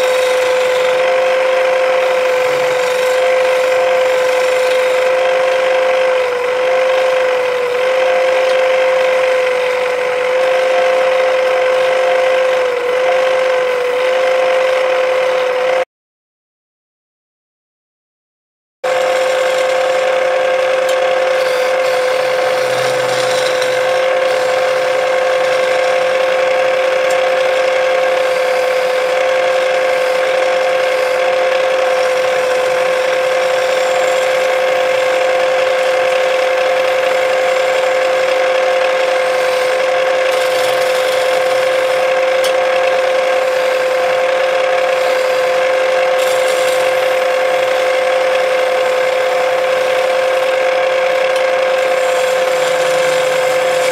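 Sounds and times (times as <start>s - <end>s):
chisel scraping spinning wood: 0.0s - 15.5s, 18.9s - 53.9s
wood lathe whining: 0.0s - 15.8s, 18.9s - 53.9s.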